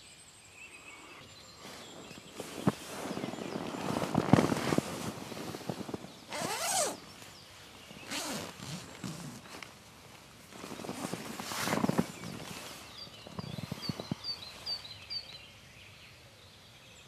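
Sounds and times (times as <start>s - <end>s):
hammock fabric rustling: 1.5s - 15.0s
zipper pulled: 2.4s - 7.0s, 8.0s - 9.7s, 10.5s - 12.8s.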